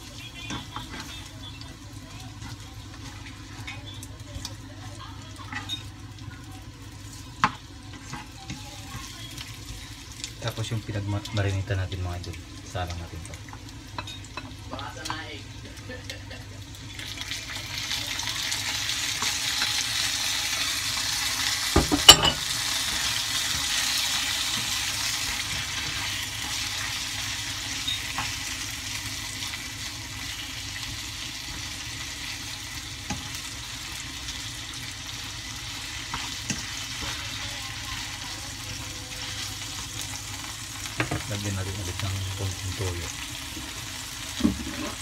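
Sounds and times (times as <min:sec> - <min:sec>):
meat sizzling in a frying pan: 0:00.0 - 0:45.0.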